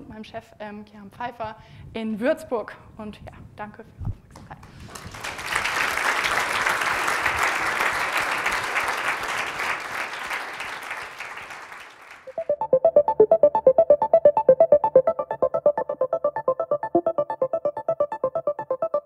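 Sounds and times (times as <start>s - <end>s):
audience applauding: 4.9s - 12.5s
electronic jingle with fast beat: 12.3s - 19.0s.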